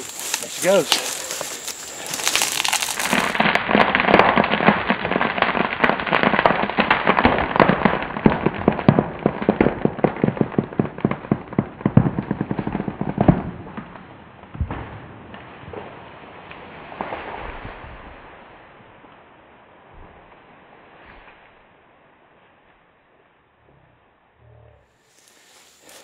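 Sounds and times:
falling tree wood cracking: 0:00.0 - 0:11.2.

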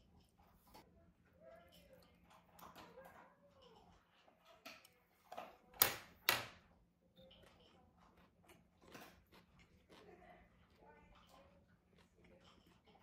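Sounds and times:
dog eating crunches: 0:08.0 - 0:13.0.

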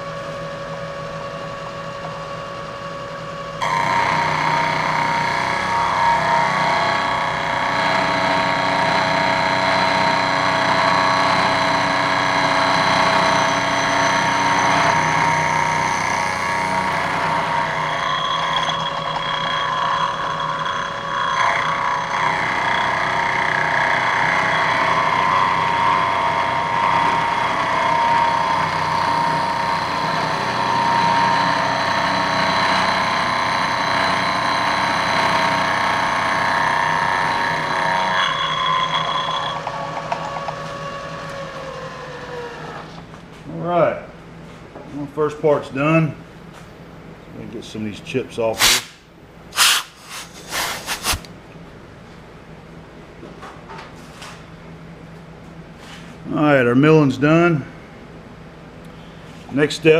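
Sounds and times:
milling machine cutting metal whine: 0:03.6 - 0:42.9.

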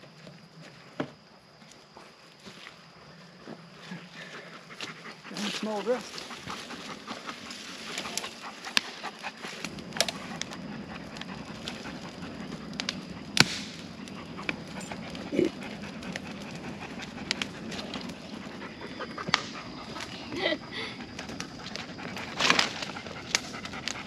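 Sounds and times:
fire crackling and popping: 0:03.5 - 0:24.0
dog panting: 0:04.4 - 0:12.6, 0:14.2 - 0:24.0.

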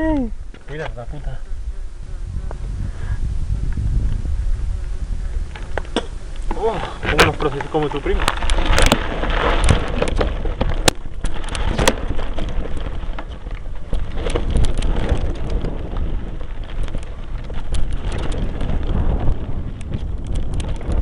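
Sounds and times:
bike tyres rattling over stones: 0:00.0 - 0:21.0
wind and vibration rumble: 0:00.0 - 0:21.0.

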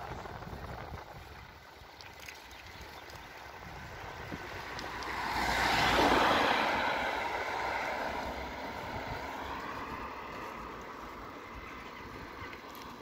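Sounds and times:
car passing by: 0:03.6 - 0:13.0.

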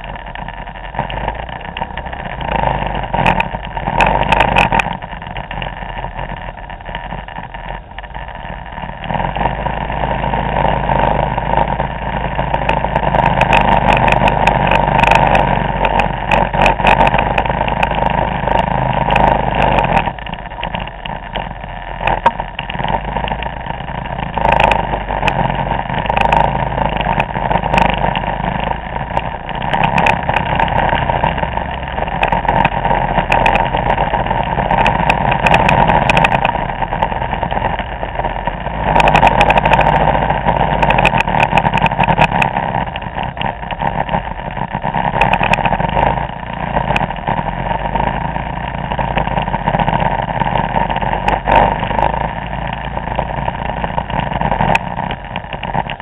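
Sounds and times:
scooter engines running: 0:00.0 - 0:56.0.

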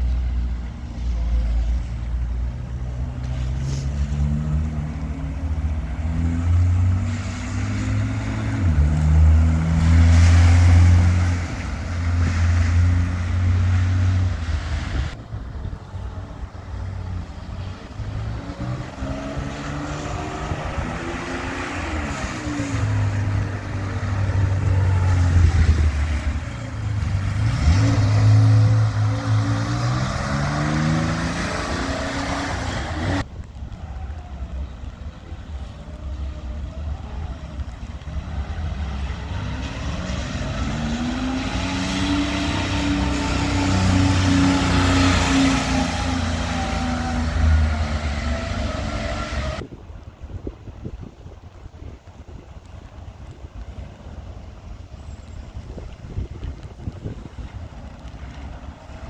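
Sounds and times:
rally cars driving past: 0:01.0 - 0:15.2, 0:16.8 - 0:49.6.

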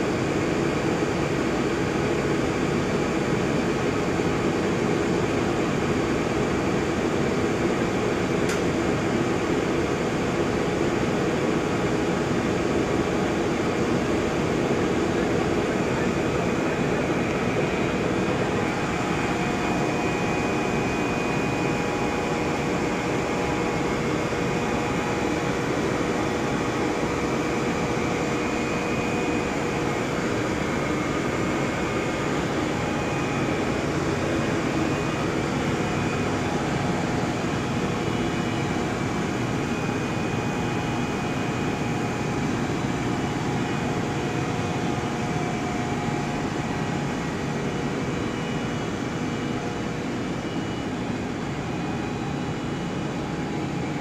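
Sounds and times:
machinery drone: 0:14.5 - 0:54.0.

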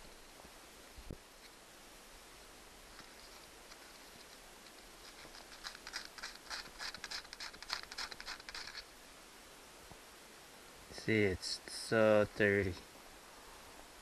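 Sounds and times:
scratchy scrubbing strokes: 0:02.9 - 0:08.8.

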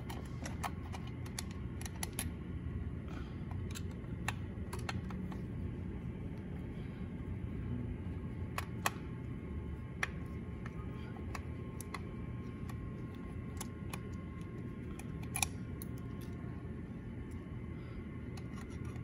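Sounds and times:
low background rumble: 0:00.0 - 0:19.0
screwdriver metal clicks: 0:15.0 - 0:16.0.

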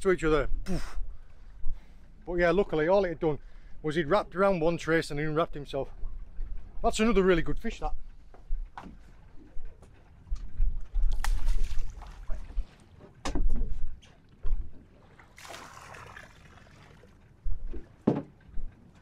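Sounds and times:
water splashing: 0:11.1 - 0:12.9, 0:14.8 - 0:17.3.

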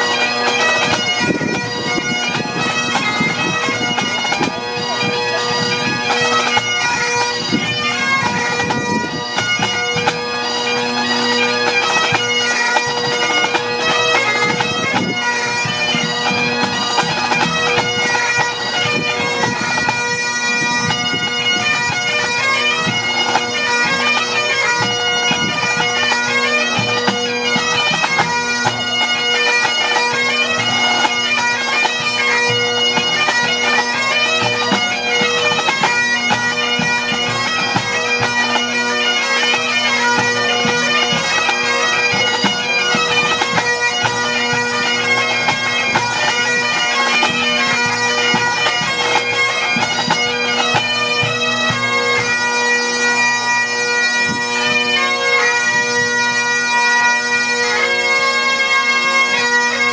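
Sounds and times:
bagpipes melody with drones: 0:00.0 - 0:59.9
snare and tenor drums: 0:00.8 - 0:10.2, 0:12.8 - 0:24.0, 0:34.4 - 0:38.3.

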